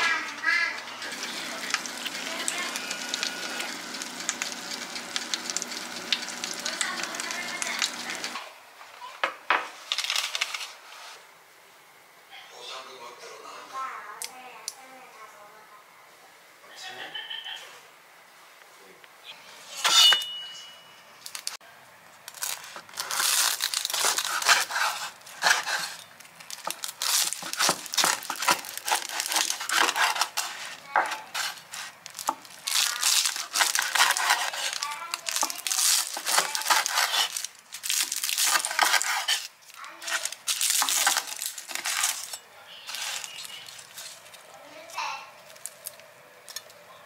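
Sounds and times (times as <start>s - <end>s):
knife crunching through pastry: 22.3s - 44.3s.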